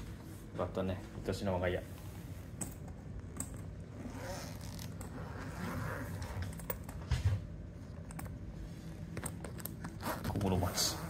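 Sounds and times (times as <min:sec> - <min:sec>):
zipper being opened: 0:03.8 - 0:06.9, 0:09.7 - 0:11.0.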